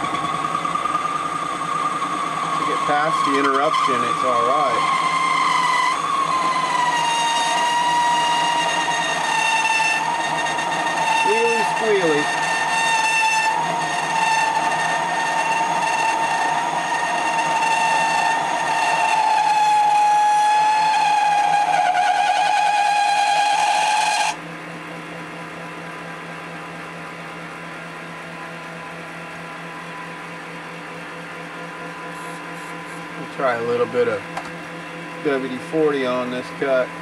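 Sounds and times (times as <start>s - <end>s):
boring bar squealing: 0.0s - 24.4s
lathe humming: 0.0s - 24.4s, 26.1s - 37.0s.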